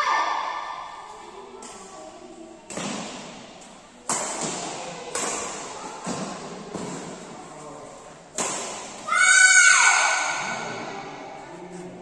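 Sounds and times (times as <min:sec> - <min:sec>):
racket hitting shuttlecock: 0:02.7 - 0:07.3, 0:08.3 - 0:09.1.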